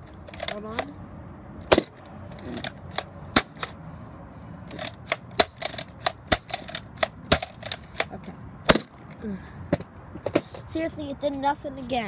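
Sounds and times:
plastic toy blaster clicking: 0.3s - 0.9s, 4.7s - 8.1s.

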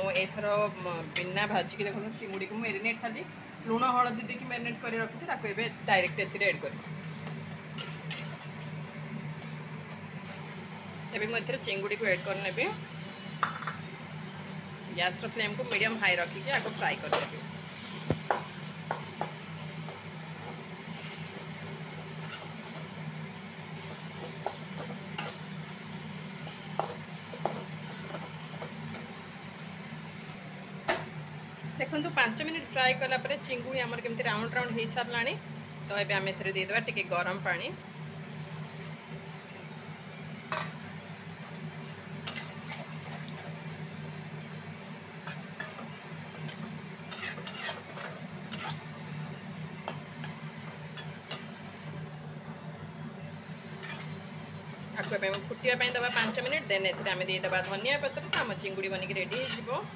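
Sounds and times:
prawns sizzling in wok: 7.4s - 8.6s, 10.1s - 59.9s
spatula scraping wok: 15.2s - 29.2s, 47.0s - 48.9s, 53.7s - 54.3s, 55.0s - 59.8s
metal spatula scraping a pan: 47.1s - 48.8s, 53.8s - 54.2s, 55.0s - 57.2s, 59.3s - 59.7s.

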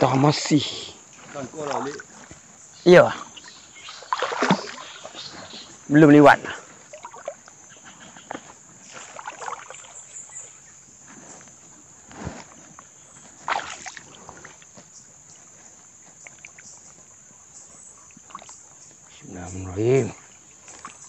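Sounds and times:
water sloshing and splashing: 0.0s - 10.7s, 12.3s - 19.2s, 20.1s - 21.0s
loud swishes of water: 3.9s - 5.2s, 8.9s - 10.0s.

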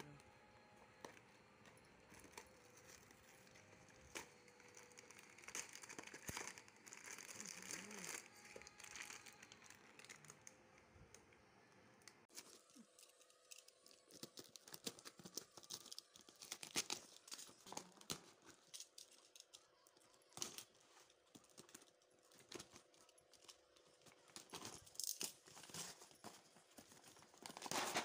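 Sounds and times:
paper rustling: 25.5s - 28.0s.

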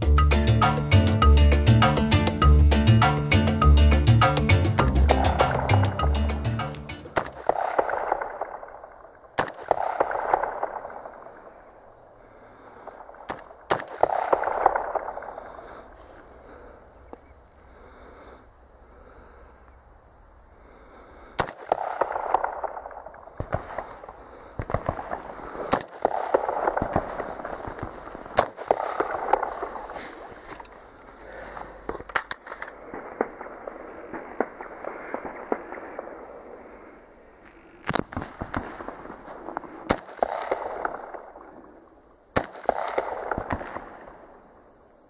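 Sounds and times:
rifle shots with echo: 7.0s - 16.8s, 21.4s - 30.3s, 32.0s - 37.1s, 37.9s - 44.5s.

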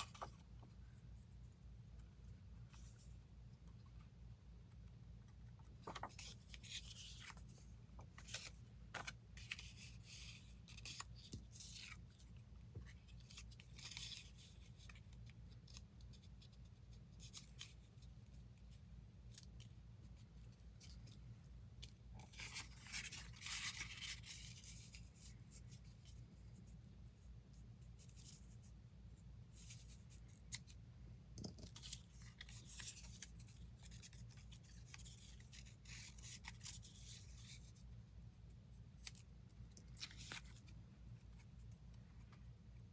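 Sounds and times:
low steady hum: 0.0s - 42.9s
paper rustling and crackling: 5.7s - 12.2s.

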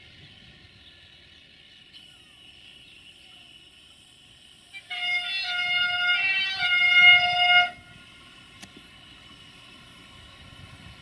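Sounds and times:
locomotive horn: 4.7s - 8.0s.

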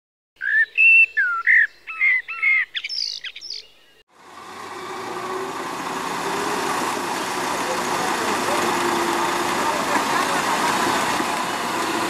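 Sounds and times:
bird whistled chirps: 0.4s - 4.0s
road traffic rush: 4.1s - 12.0s.

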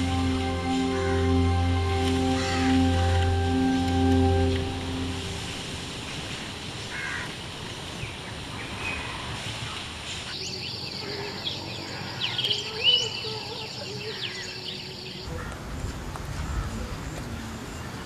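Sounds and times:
soft music: 0.0s - 6.6s
steady hiss: 0.0s - 18.0s.

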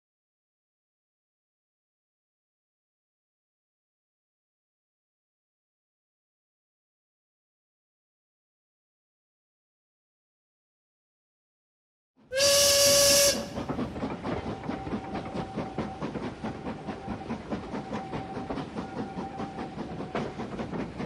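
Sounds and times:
steam whistle blowing: 12.3s - 13.6s
steam train chuffing: 12.3s - 21.0s.

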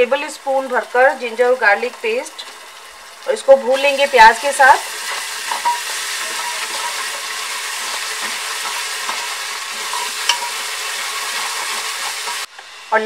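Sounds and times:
onions sizzling in hot oil: 0.0s - 13.0s
spatula scraping a pot: 5.0s - 12.5s.

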